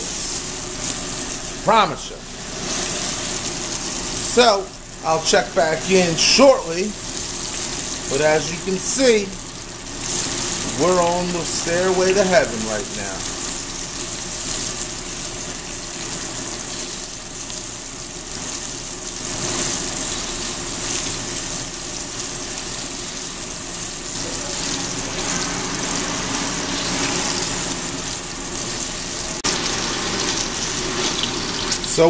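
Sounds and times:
meat sizzling in grill pan: 0.0s - 32.0s.

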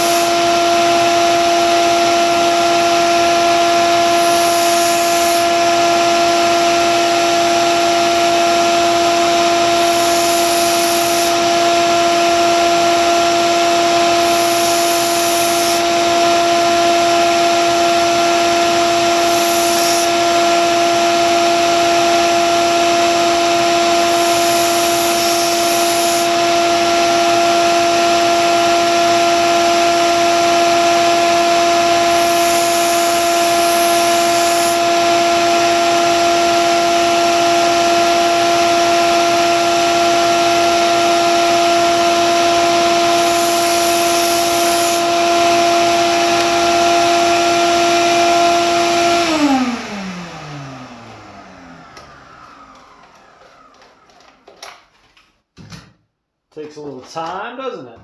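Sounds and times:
steel grinding on abrasive belt: 0.0s - 49.2s
belt sander humming: 0.0s - 55.0s.

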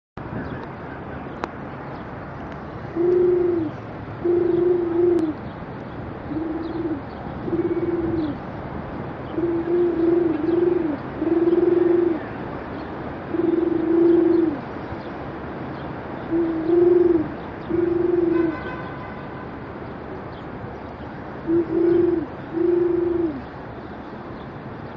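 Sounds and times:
street background noise: 0.2s - 24.9s
person imitating pigeon coos: 3.0s - 5.4s, 6.3s - 8.4s, 9.4s - 12.2s, 13.3s - 14.6s, 16.3s - 18.4s, 21.5s - 23.4s.

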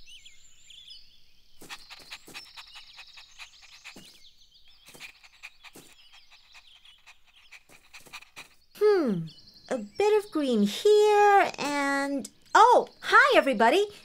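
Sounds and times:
birds chirping: 0.0s - 14.0s
puppy panting: 1.6s - 8.7s.

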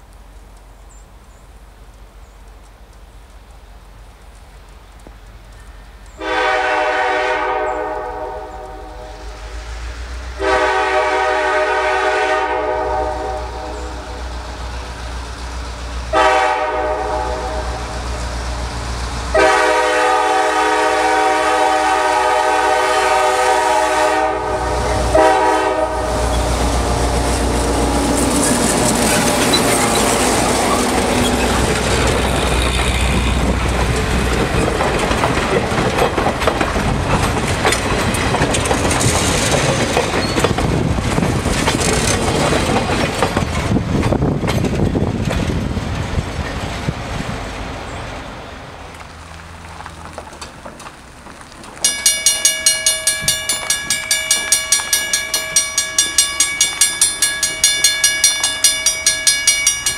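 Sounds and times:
train wheels on rail: 0.0s - 59.9s
locomotive air horn blasts: 6.2s - 9.6s, 10.3s - 14.2s, 16.1s - 18.0s, 19.3s - 27.0s.

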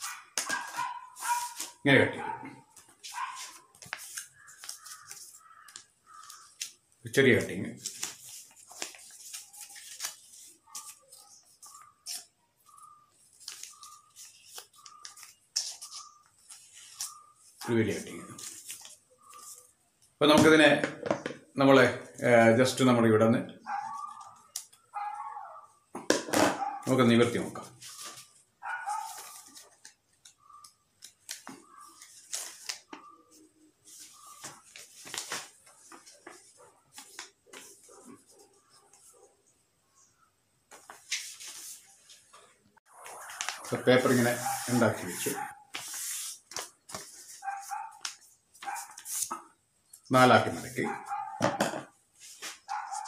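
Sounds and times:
paper rustling and crinkling: 0.0s - 1.8s, 2.7s - 6.8s, 7.7s - 19.8s, 27.5s - 30.4s, 31.0s - 39.2s, 40.7s - 49.4s.

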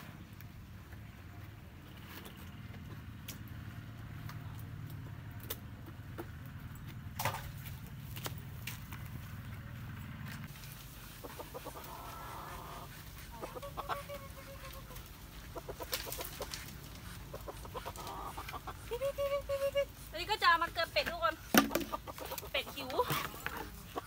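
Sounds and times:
chickens clucking: 10.5s - 24.0s
drawn-out hen calls: 10.5s - 24.0s.

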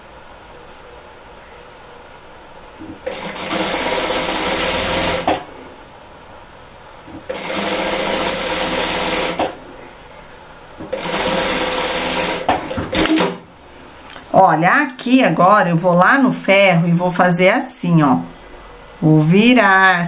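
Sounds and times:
sewing machine stitching: 3.0s - 5.5s, 7.3s - 9.6s, 10.8s - 13.4s.

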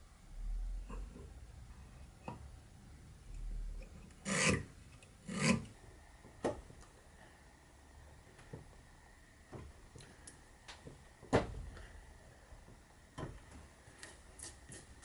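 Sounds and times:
knife scratching wood: 4.2s - 5.7s.

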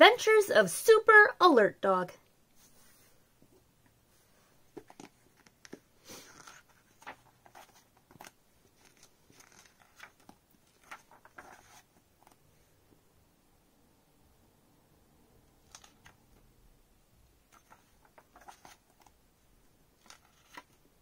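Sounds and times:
paper pages rustling: 4.7s - 12.4s, 15.7s - 16.2s, 17.5s - 19.2s, 20.0s - 20.8s.

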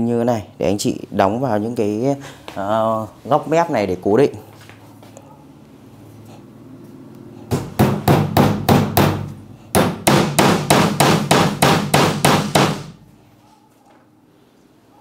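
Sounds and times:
hammer driving nails: 7.5s - 13.0s.

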